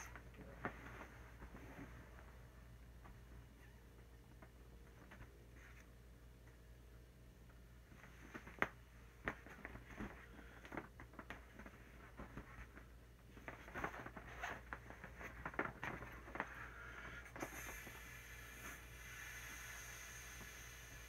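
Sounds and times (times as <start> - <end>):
vinyl inflatable squeaking and crinkling: 8.0 - 21.0.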